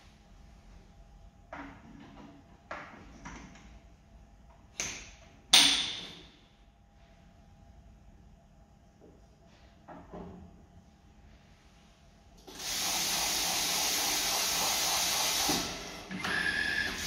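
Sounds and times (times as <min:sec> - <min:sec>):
sharp metallic knocks and clanks: 0:04.8 - 0:06.4.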